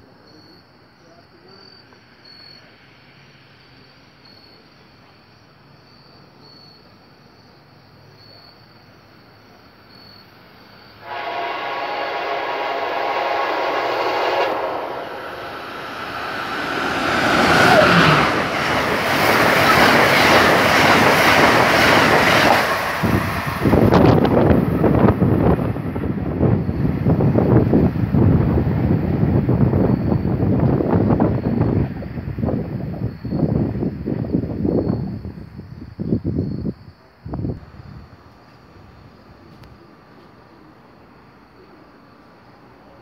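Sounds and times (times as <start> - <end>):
insects chirping: 0.0 - 43.0
train horn blast: 11.0 - 18.7
train passing clatter: 11.0 - 33.0.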